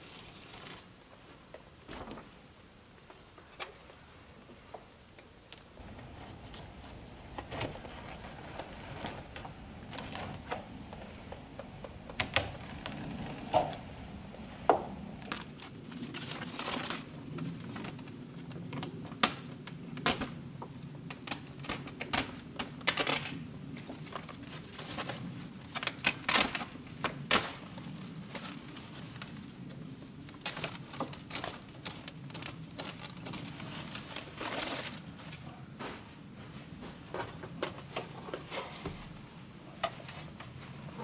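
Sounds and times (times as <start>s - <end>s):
foil crinkling and rustling: 5.8s - 20.3s, 21.1s - 35.4s.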